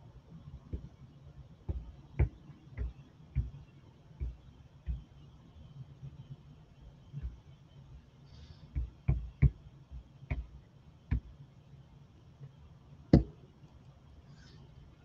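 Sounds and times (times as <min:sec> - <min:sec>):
taps and knocks on a tabletop: 0:01.7 - 0:03.6, 0:08.8 - 0:09.6, 0:10.3 - 0:11.3, 0:13.1 - 0:13.4.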